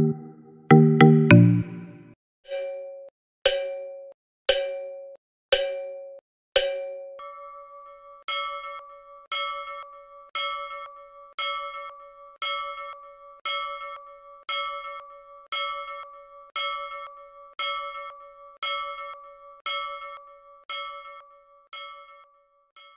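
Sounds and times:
bell-like ding: 0:00.0 - 0:02.8.

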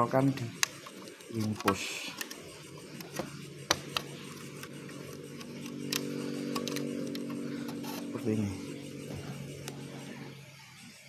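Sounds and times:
steady low hum: 0:00.0 - 0:11.0
plastic parts clicking and tapping: 0:00.2 - 0:08.0.

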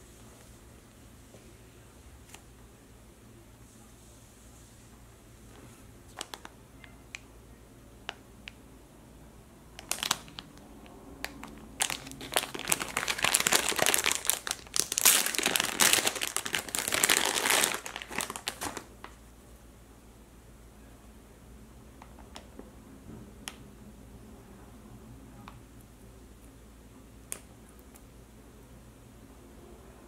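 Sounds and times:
plastic bag crinkling: 0:09.8 - 0:10.6, 0:11.2 - 0:19.2.

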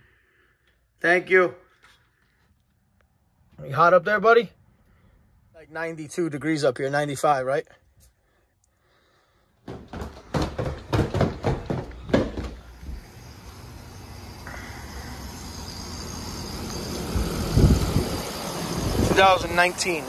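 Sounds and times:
knocks and rustles: 0:09.6 - 0:13.0
condenser unit humming: 0:09.7 - 0:20.0.

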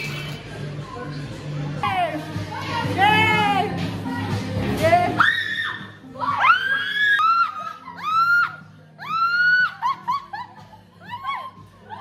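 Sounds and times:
people shrieking and squealing: 0:05.2 - 0:10.2.

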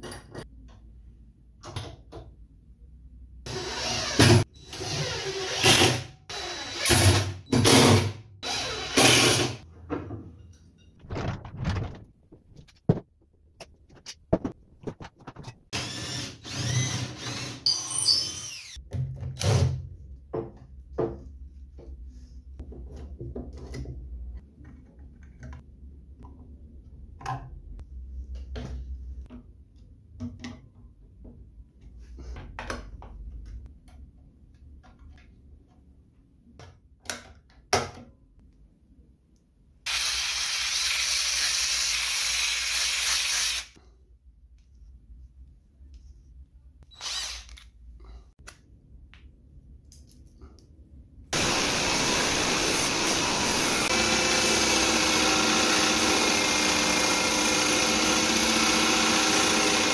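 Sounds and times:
power drill running: 0:03.5 - 0:09.6, 0:15.7 - 0:18.8, 0:46.9 - 0:47.6, 0:51.4 - 0:59.9.

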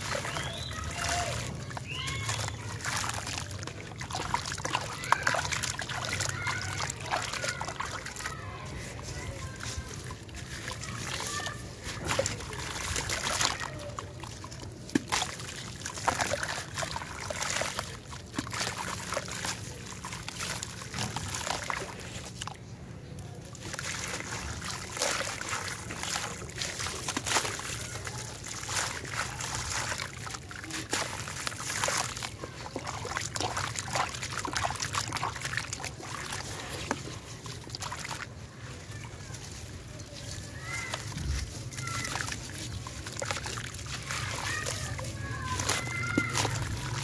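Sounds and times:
grit trickling into water: 0:00.0 - 0:47.0
water splashing: 0:00.0 - 0:47.0
gritty crunching and crackling: 0:35.3 - 0:47.0.

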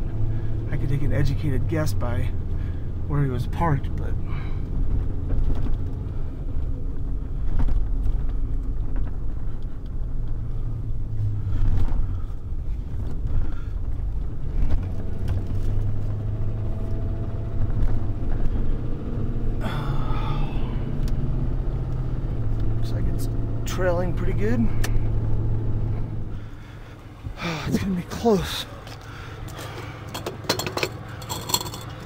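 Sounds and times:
truck engine and road rumble: 0:00.0 - 0:32.0.

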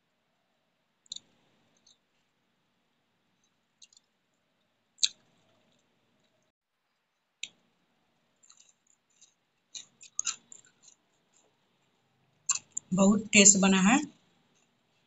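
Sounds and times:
wet chewing smacks: 0:08.4 - 0:11.6.

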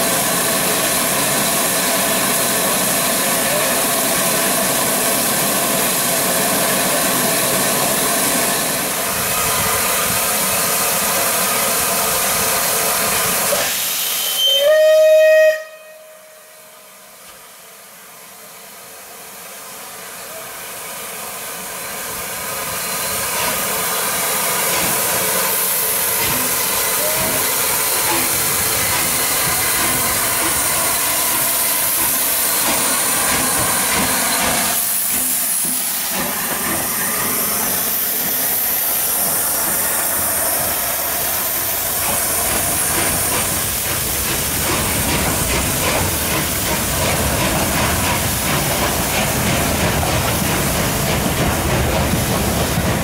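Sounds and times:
steam hissing: 0:00.0 - 0:15.4, 0:18.4 - 0:53.0
train running rhythmic beat: 0:22.4 - 0:53.0.

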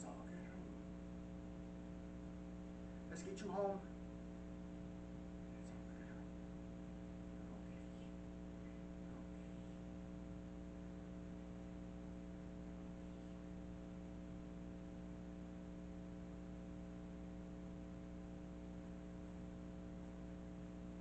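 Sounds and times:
low background hiss: 0:00.0 - 0:15.6
electrical hum: 0:00.0 - 0:21.0.

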